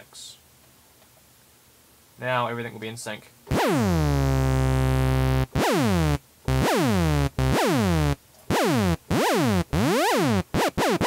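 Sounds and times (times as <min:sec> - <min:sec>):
synth blips with falling pitch: 0:03.5 - 0:11.0.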